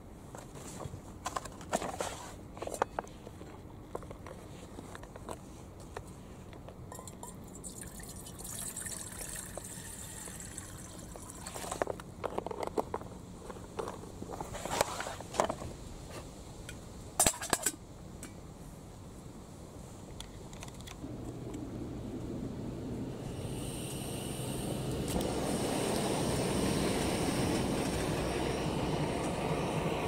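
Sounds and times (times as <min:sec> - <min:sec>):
metal lid clinking on pot: 0:06.9 - 0:07.4
water pouring into metal pot: 0:07.0 - 0:11.5.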